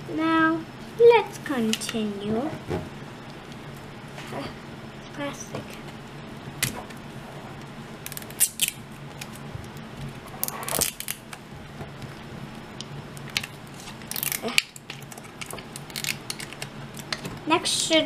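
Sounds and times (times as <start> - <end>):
plastic wrapping crackling: 8.1 - 11.4, 13.2 - 17.3.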